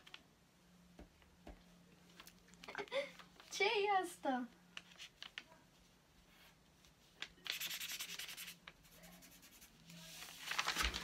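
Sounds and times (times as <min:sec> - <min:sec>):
markers scratching on paper: 0:07.4 - 0:09.8.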